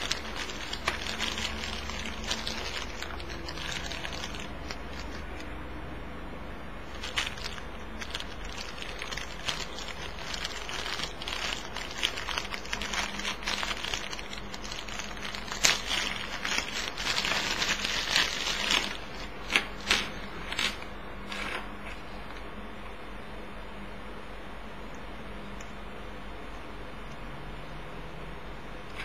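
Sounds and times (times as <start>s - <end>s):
plastic bag crinkling: 0.0s - 5.4s, 6.8s - 22.0s.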